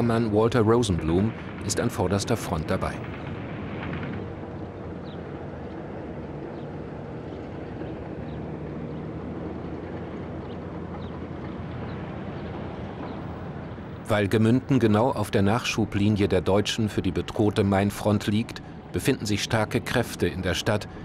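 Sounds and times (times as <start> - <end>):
boat motor droning: 0.0 - 21.0.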